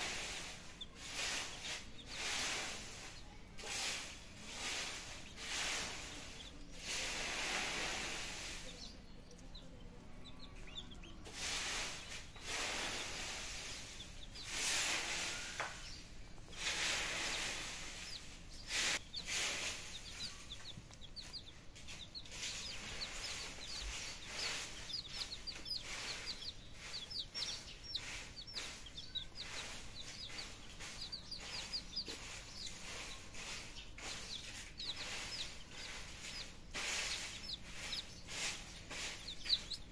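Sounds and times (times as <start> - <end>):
rustling noise: 0.0 - 9.4, 11.2 - 39.9
chicks and ducklings peeping: 0.0 - 39.9.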